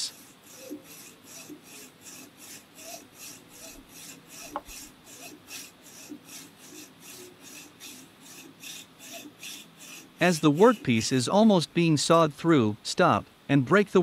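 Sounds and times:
hacksaw cutting metal: 0.0 - 11.3.

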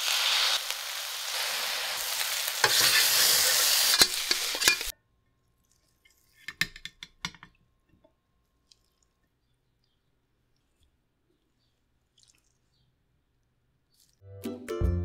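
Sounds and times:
rice sizzling in a wok: 0.0 - 4.9
metal spatula scraping a pan: 2.5 - 4.9
metal spoon clinking on plate: 3.9 - 4.9.

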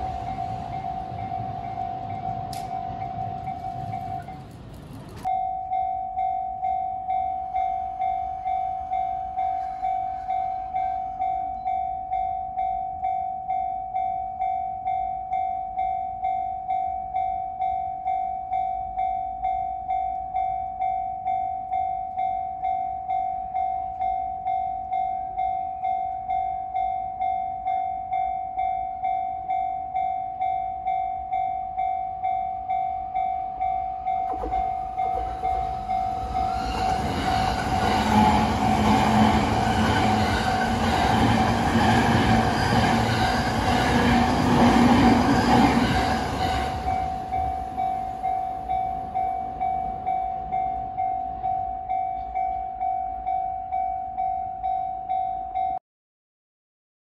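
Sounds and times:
level crossing bell ringing: 0.0 - 4.4, 5.2 - 37.8
electric train passing: 0.0 - 55.7.

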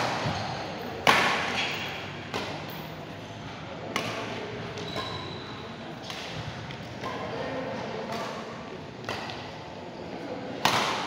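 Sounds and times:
shoe squeaks: 4.8 - 5.8
racket smacking shuttlecock: 10.6 - 11.0.

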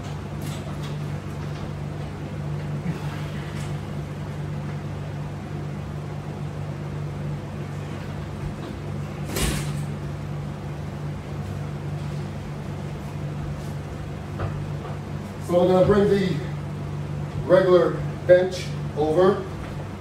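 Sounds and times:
air conditioner humming: 0.0 - 20.0.

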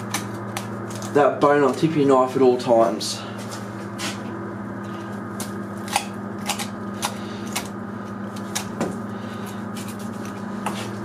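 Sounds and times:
steady hum: 0.0 - 11.0
knife clicking and scraping on bone: 5.4 - 7.7.

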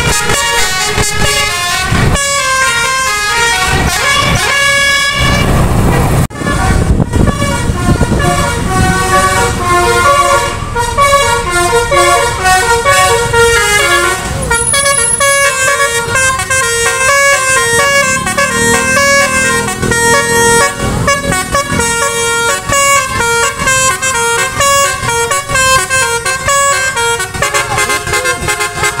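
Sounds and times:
musical air horn melody: 0.0 - 5.7, 6.3 - 29.0
bus engine running: 0.0 - 29.0.

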